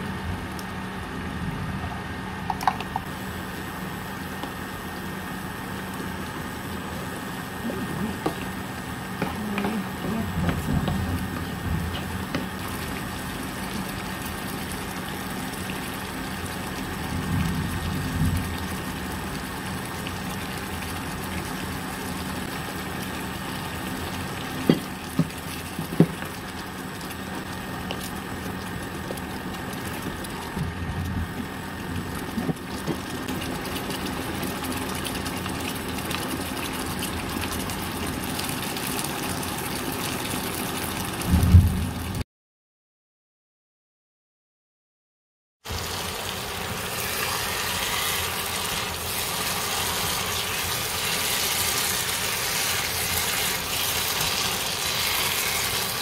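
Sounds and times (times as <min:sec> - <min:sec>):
induction cooker hum: 0:00.0 - 0:42.2, 0:45.6 - 0:56.0
sauce simmering in a pan: 0:11.2 - 0:17.8, 0:18.4 - 0:30.6, 0:31.4 - 0:41.3, 0:45.7 - 0:56.0.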